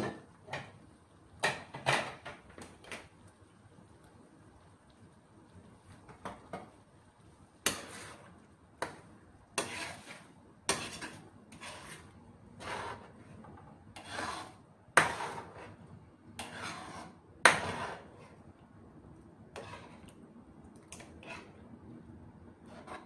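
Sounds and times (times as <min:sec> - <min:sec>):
metal spoon scraping a pan: 0:07.6 - 0:18.4, 0:19.5 - 0:20.2, 0:20.9 - 0:21.6, 0:22.6 - 0:23.0.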